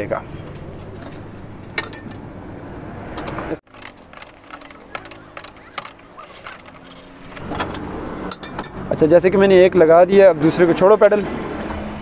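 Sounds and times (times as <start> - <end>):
ringing metal clink: 1.8 - 2.4, 7.7 - 8.9.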